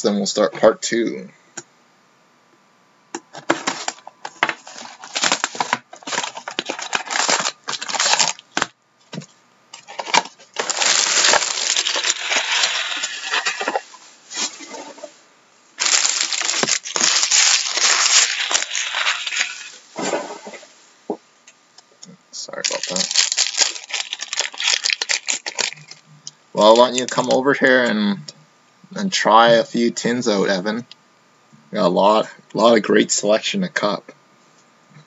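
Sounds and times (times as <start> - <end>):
plastic wrap and cardboard crunching: 3.4 - 8.8, 9.8 - 15.1, 15.8 - 20.6, 22.6 - 26.0, 26.6 - 27.5.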